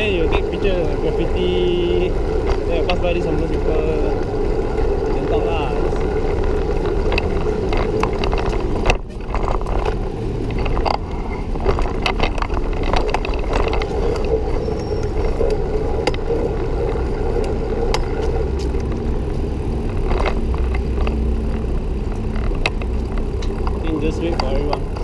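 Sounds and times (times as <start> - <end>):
bicycle tyre noise: 0.0 - 25.0
bike clicks and rattles: 0.0 - 25.0
road traffic: 0.0 - 25.0
wind noise on microphone: 0.0 - 25.0.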